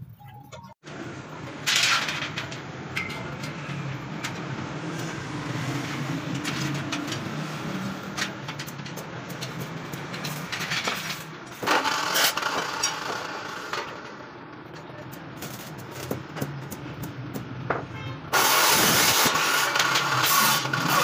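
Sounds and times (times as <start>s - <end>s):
metal clatter: 1.5s - 4.5s, 8.0s - 17.1s.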